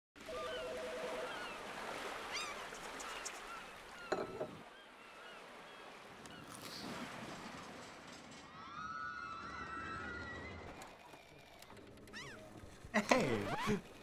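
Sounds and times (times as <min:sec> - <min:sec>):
seagulls crying: 0:00.2 - 0:06.6, 0:12.0 - 0:12.6.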